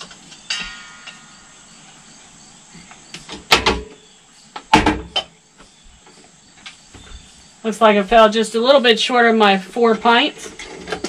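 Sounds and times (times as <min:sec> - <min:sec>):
crickets chirping: 0:00.0 - 0:11.0
metal clink with ringing: 0:00.4 - 0:02.6
loud knocks and clunks: 0:03.2 - 0:04.0, 0:04.6 - 0:05.3.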